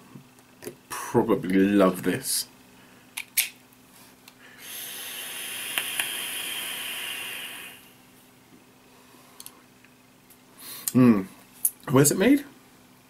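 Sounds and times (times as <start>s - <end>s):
e-cigarette draw hiss: 4.6s - 8.0s.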